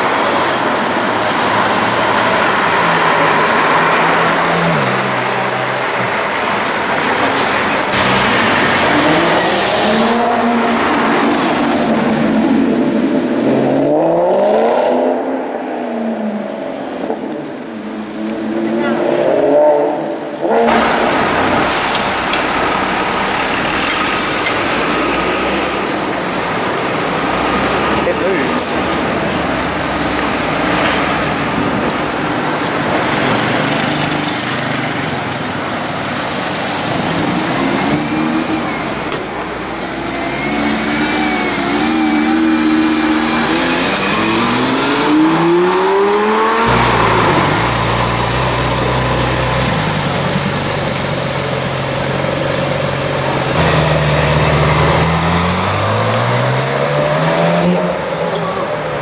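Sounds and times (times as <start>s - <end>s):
sports car engine revving: 39.8s - 50.8s
sports car engine accelerating: 39.8s - 57.9s.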